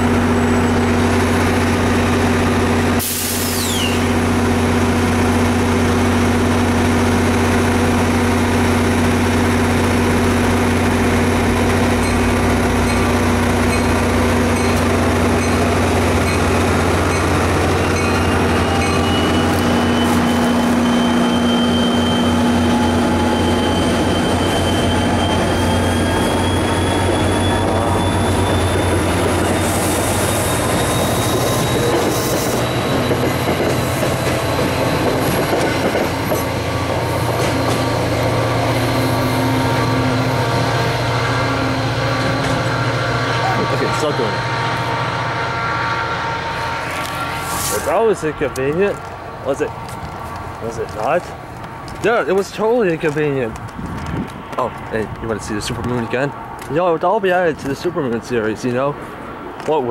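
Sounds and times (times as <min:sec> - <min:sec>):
diesel locomotive engine running: 0:00.0 - 0:59.9
short high squeal: 0:03.0 - 0:04.1, 0:17.8 - 0:33.2.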